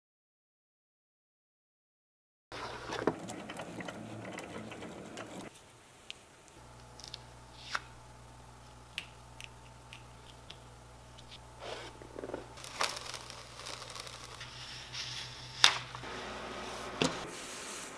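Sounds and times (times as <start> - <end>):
steady low hum: 6.3 - 17.9
vinyl peeling off a cutting mat: 12.6 - 16.1.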